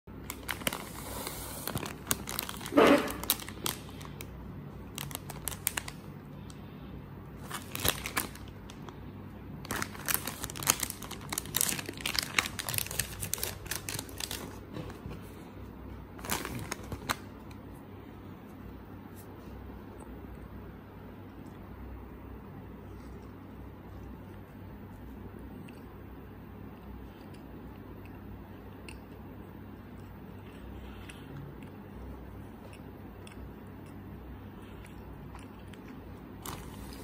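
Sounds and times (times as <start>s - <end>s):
plastic wrapper crinkling: 0.1s - 6.1s, 7.4s - 9.0s, 9.6s - 15.3s, 16.2s - 17.5s, 36.4s - 37.0s.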